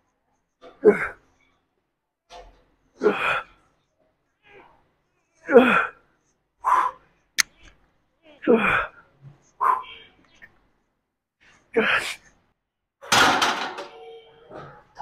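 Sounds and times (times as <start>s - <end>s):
man grunting and exhaling: 0.7s - 1.2s, 3.0s - 3.6s, 5.5s - 6.0s, 11.7s - 12.2s.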